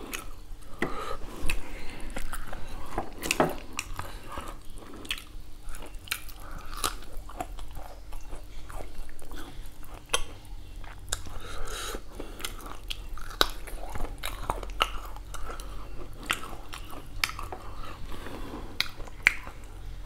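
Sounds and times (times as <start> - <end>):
close-up chewing: 0.0 - 20.0
wet mouth clicks and smacks: 18.8 - 19.7.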